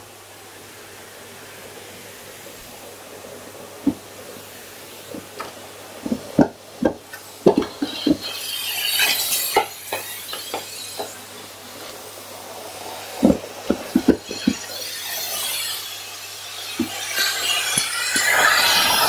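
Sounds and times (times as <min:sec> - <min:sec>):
rushing hiss: 0:00.0 - 0:19.0
vacuum cleaner running: 0:00.0 - 0:19.0.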